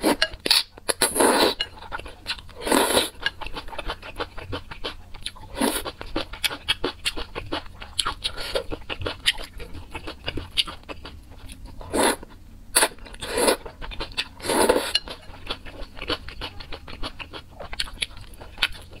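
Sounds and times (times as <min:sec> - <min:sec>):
wet chewing and mouth clicks: 0:01.7 - 0:19.0.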